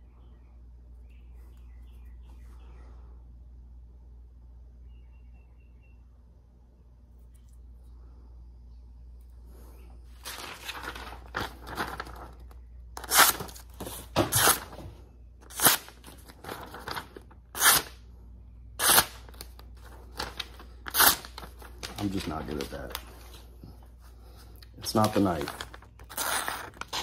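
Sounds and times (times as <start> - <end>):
paper ripping and rustling: 10.1 - 17.9, 18.8 - 23.4, 24.8 - 27.0.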